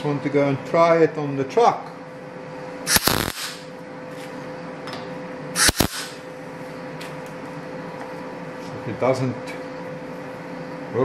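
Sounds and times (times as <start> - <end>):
steady background hum: 0.0 - 11.0
welder burst: 2.9 - 3.7, 5.6 - 6.2.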